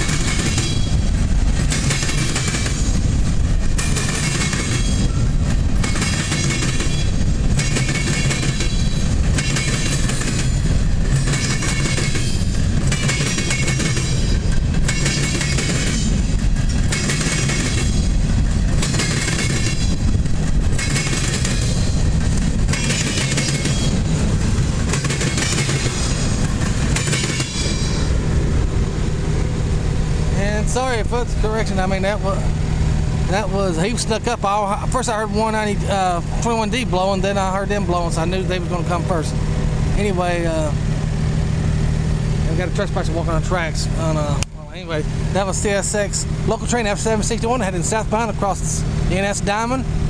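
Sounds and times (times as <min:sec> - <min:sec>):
wheels clattering over crossing: 0:00.0 - 0:28.1
freight train rumble: 0:00.0 - 0:50.0.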